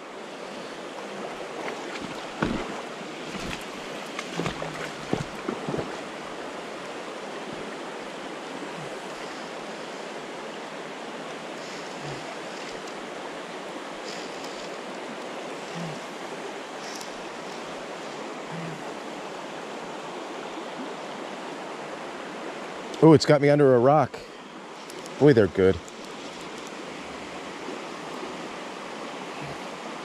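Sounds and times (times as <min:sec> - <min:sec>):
creek water running over stones: 0:00.0 - 0:30.0.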